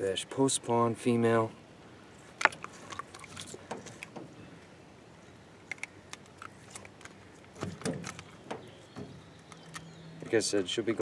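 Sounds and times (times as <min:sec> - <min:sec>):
fish handling clicks and rustles: 0:02.2 - 0:04.4, 0:05.6 - 0:10.0
knocks in a boat: 0:07.6 - 0:09.2.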